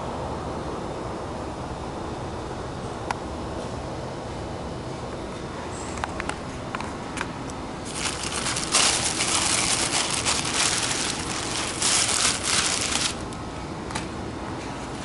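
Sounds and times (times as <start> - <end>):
car cover crinkling and rustling: 7.8 - 13.4.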